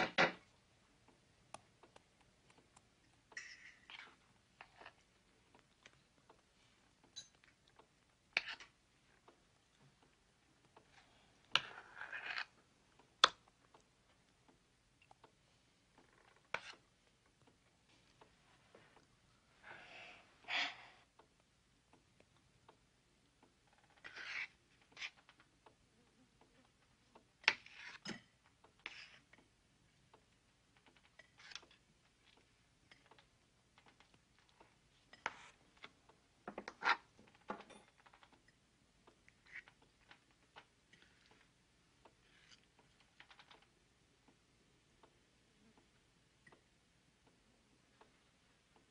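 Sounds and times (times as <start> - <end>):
spoon patting mashed potatoes: 0.9 - 19.2, 22.0 - 44.4.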